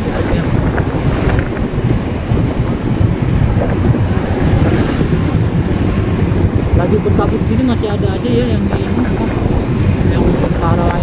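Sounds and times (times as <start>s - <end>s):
motorbike engine: 0.0s - 11.0s
wind rushing over microphone: 0.0s - 11.0s.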